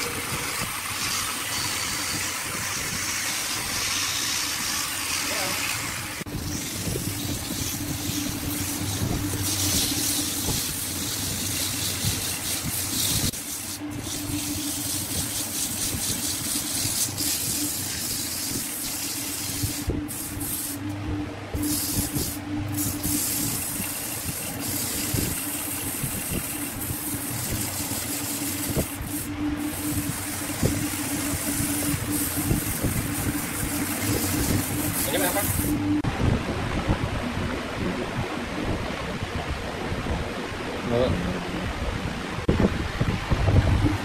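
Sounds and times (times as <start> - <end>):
sandpaper hissing on wood: 0.0 - 20.9, 21.6 - 35.8
wood lathe motor humming: 0.0 - 36.0.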